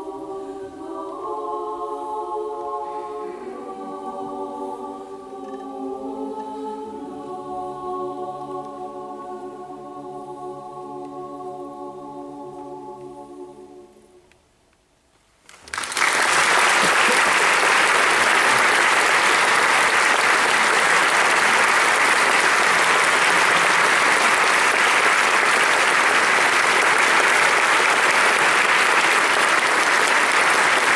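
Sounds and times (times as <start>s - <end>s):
women's choir holding chord: 0.0s - 14.3s
audience applauding: 15.5s - 30.9s.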